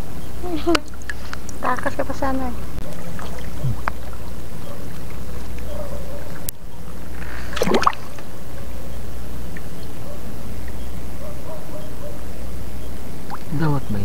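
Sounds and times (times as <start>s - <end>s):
water sloshing and gurgling: 0.7s - 8.3s, 13.2s - 13.6s
bubbling splash: 3.0s - 5.2s, 7.5s - 8.2s.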